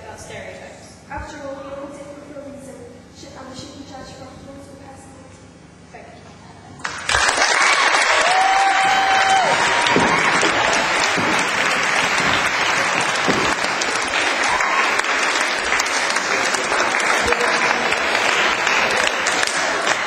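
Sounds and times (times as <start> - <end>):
audience applauding: 6.8 - 20.0.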